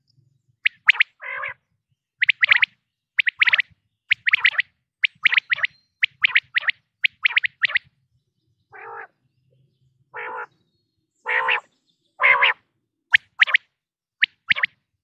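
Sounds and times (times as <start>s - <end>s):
quail nasal croaking notes: 0.7s - 1.6s, 2.2s - 7.9s, 8.8s - 9.1s, 10.2s - 10.5s, 11.3s - 14.8s
quail sharp high calls: 0.7s - 1.6s, 2.2s - 7.9s, 8.8s - 9.1s, 10.2s - 10.5s, 11.3s - 14.8s.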